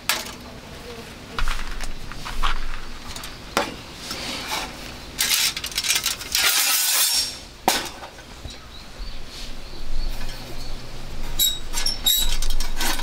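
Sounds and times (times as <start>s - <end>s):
metal clinks and scraping: 4.5s - 8.1s, 11.3s - 13.0s.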